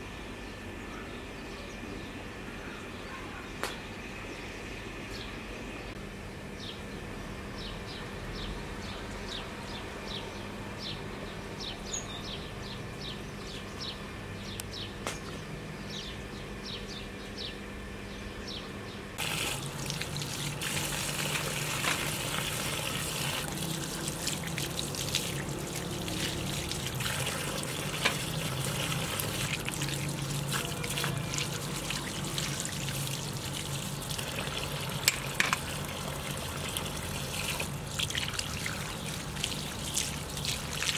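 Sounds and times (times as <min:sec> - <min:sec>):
water from hose splashing: 0:19.2 - 0:40.9.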